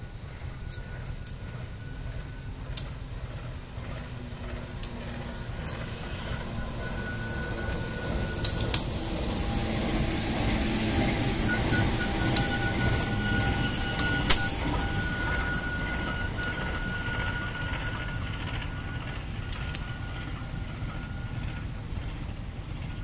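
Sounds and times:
locomotive engine rumble: 0:00.0 - 0:23.0
sharp clicks: 0:19.5 - 0:19.9.

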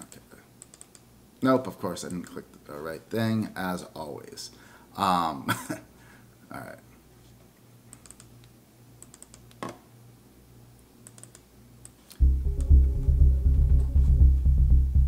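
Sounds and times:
mouse and keyboard clicks: 0:00.6 - 0:01.0, 0:07.9 - 0:09.6, 0:11.0 - 0:12.2
electronic loop with drums: 0:12.2 - 0:15.0.

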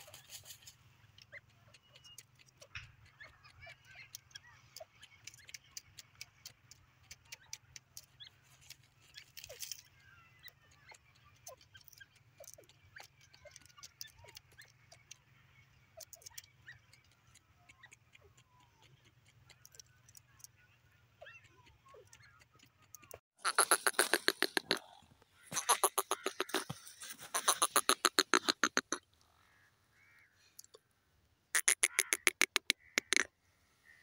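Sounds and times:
dry soil ticks and scratches: 0:00.0 - 0:15.3, 0:21.3 - 0:30.2
small birds chirping: 0:00.0 - 0:30.9, 0:31.6 - 0:34.0.

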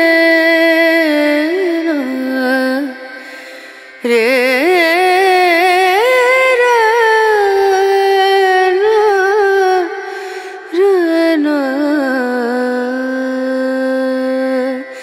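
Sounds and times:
solo voice singing: 0:04.0 - 0:15.0.

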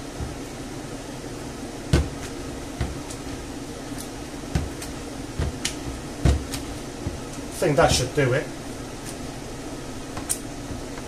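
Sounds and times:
kitchen extractor fan hum: 0:00.0 - 0:11.0
potatoes being mashed: 0:01.8 - 0:07.6.

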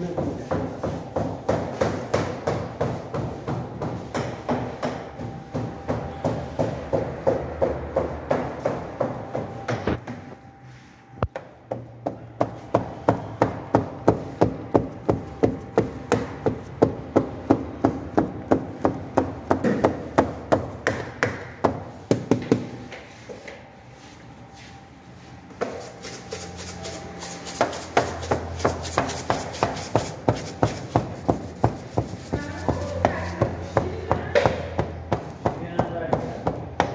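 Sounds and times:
fingertips tapping dough on tray: 0:11.2 - 0:22.9, 0:27.5 - 0:36.9.

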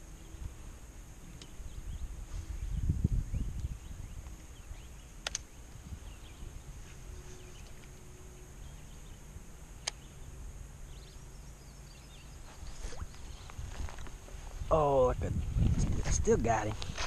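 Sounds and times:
faint bird chirps: 0:01.3 - 0:13.5
sharp clicks: 0:05.2 - 0:05.5.

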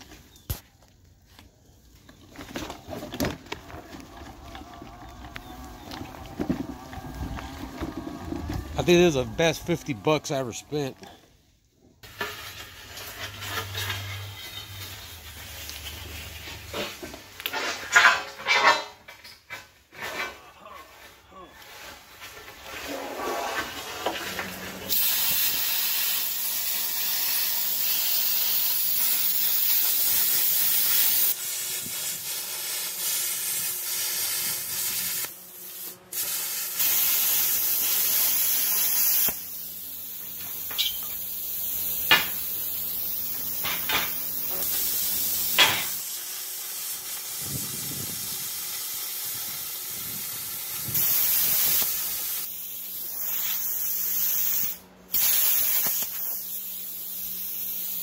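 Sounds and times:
plasma cutter hissing: 0:24.9 - 0:58.0.

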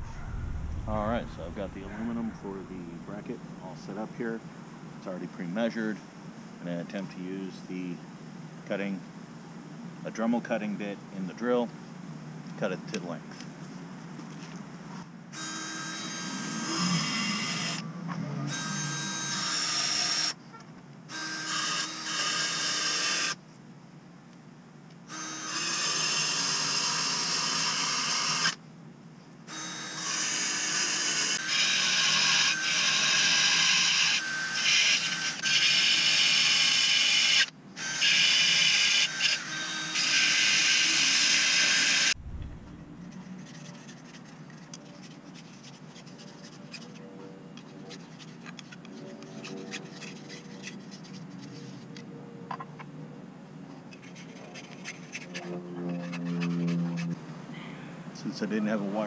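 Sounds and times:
drill grinding through metal: 0:15.4 - 0:17.8, 0:18.5 - 0:20.4, 0:21.1 - 0:23.4, 0:25.1 - 0:28.6, 0:29.5 - 0:42.2.

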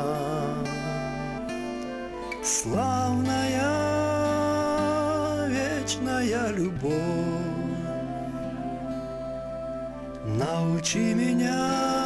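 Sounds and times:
low instrumental accompaniment: 0:00.0 - 0:12.0
solo voice singing long note: 0:02.4 - 0:08.8, 0:10.2 - 0:12.0.

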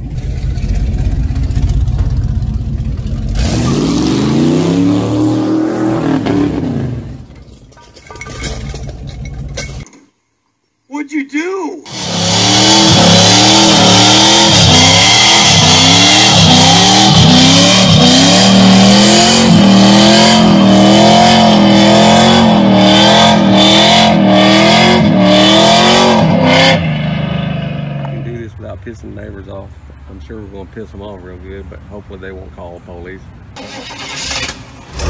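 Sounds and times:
truck engine revving hard: 0:03.3 - 0:07.2, 0:11.9 - 0:28.2.

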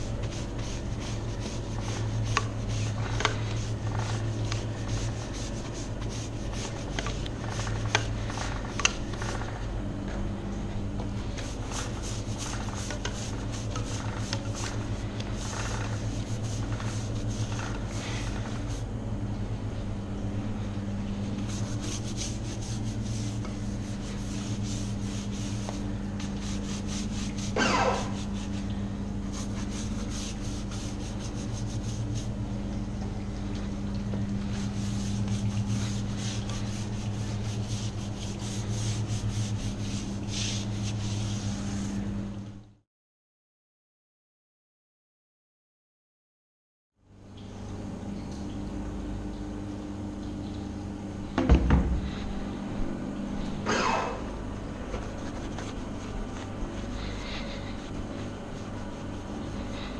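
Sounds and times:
brush scrubbing a tyre: 0:00.0 - 0:09.4, 0:11.2 - 0:18.8, 0:21.2 - 0:32.4, 0:34.5 - 0:42.0, 0:54.9 - 0:59.9
steady low hum: 0:00.0 - 0:42.8, 0:47.0 - 0:59.9.

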